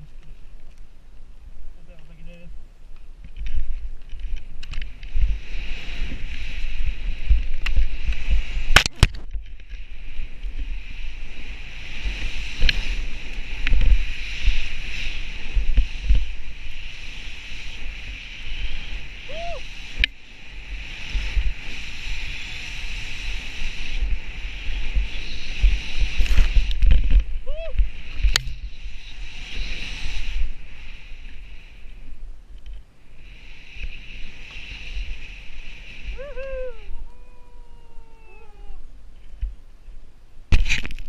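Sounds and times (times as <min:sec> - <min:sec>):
wind on microphone: 0:00.0 - 0:41.0
skis hissing through powder snow: 0:05.0 - 0:08.7, 0:09.8 - 0:32.3, 0:33.0 - 0:36.9.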